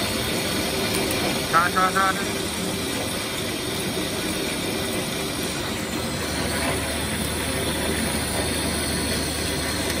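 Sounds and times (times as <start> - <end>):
lathe machine hum: 0.0 - 10.0.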